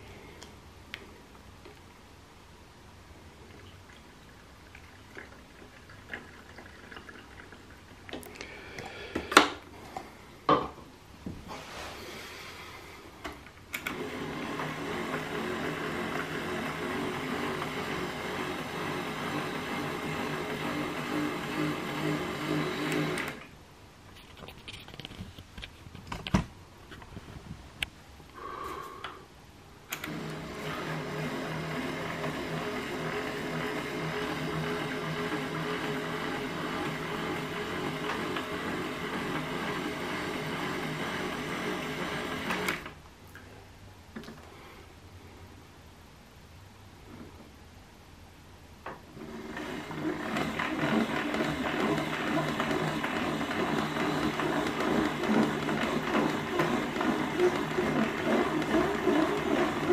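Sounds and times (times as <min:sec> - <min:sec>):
toy washing machine motor whirring: 0:13.8 - 0:23.5, 0:29.9 - 0:43.0, 0:49.2 - 0:59.9.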